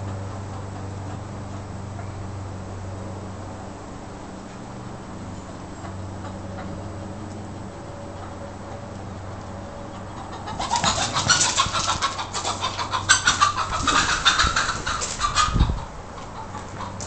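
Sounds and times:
rooster wings flapping: 10.5 - 15.7.

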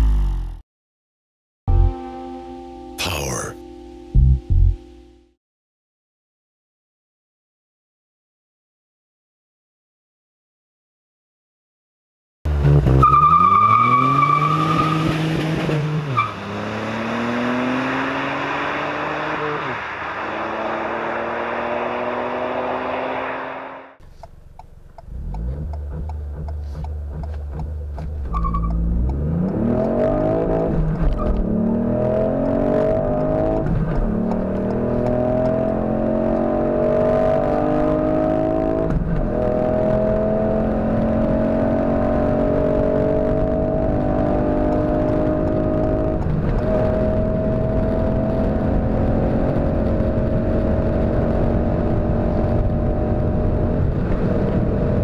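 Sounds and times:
car engine revving and accelerating: 12.5 - 24.0, 25.0 - 55.0.

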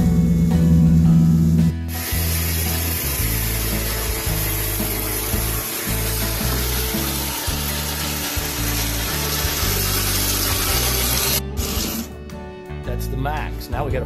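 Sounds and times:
background music: 0.0 - 14.0
power saw cutting steel: 1.9 - 12.1.

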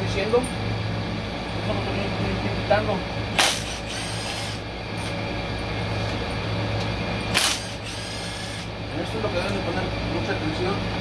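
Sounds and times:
steady low hum: 0.0 - 11.0
cordless power tool running: 3.3 - 5.1, 7.2 - 8.8.

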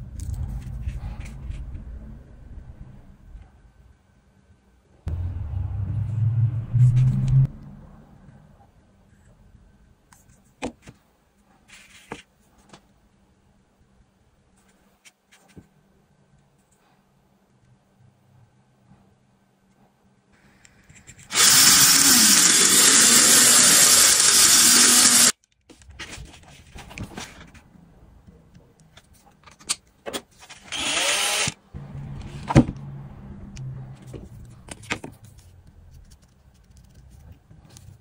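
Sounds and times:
handheld power tool running: 21.3 - 25.3, 30.7 - 31.6.

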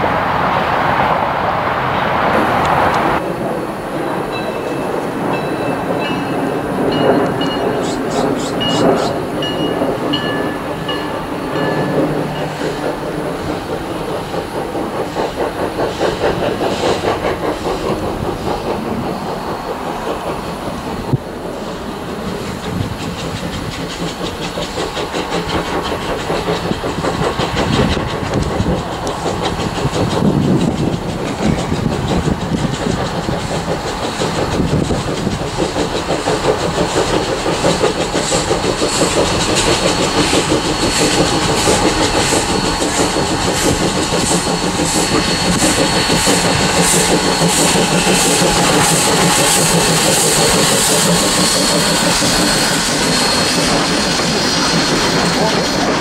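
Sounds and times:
steam locomotive: 0.0 - 56.0
steam hissing: 2.2 - 56.0
wheels clattering on rails: 2.3 - 56.0.

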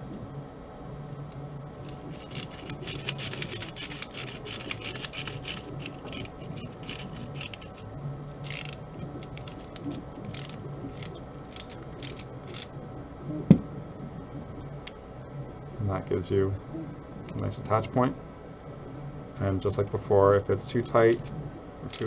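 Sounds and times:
screwdriver clicks and scrapes: 1.8 - 7.8, 8.4 - 12.7.

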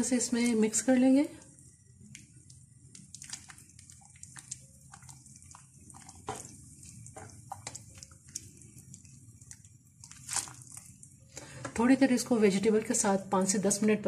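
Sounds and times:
soup sloshing: 0.4 - 11.6.

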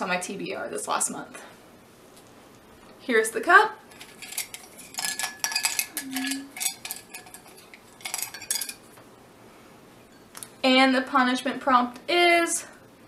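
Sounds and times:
wooden sticks rattling in a mug: 3.9 - 8.9.

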